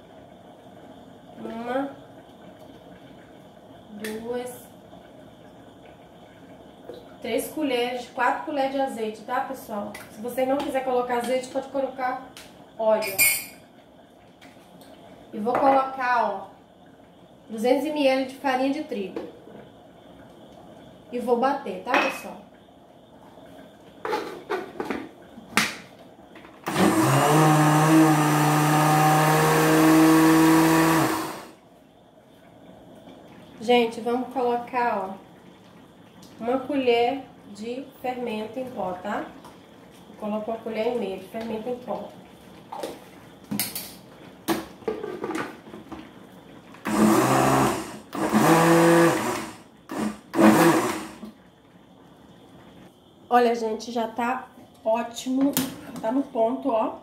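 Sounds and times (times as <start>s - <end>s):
blender motor running: 26.6s - 31.6s, 46.8s - 51.3s.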